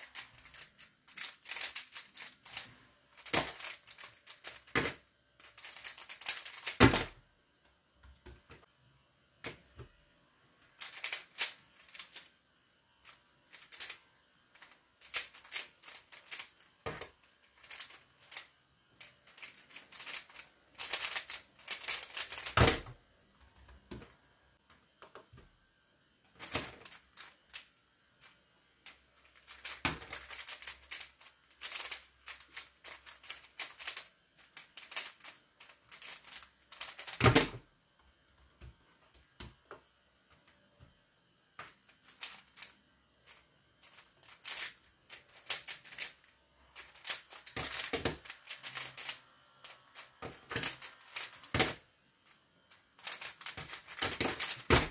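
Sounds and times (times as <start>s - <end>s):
puzzle cube plastic clicking: 0.0s - 7.2s, 10.8s - 12.3s, 13.0s - 23.0s, 26.4s - 27.7s, 28.8s - 37.6s, 41.6s - 46.2s, 46.8s - 51.8s, 53.0s - 54.9s.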